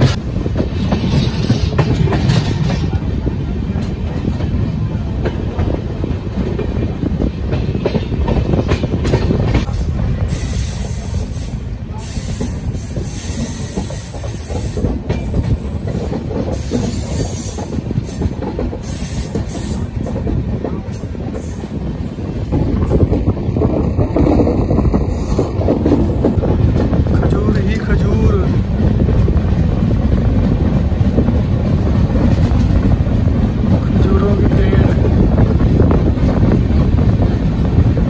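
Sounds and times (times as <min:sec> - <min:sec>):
wheels clacking over rail joints: 0:00.0 - 0:11.4
train rumbling on rails: 0:00.0 - 0:38.0.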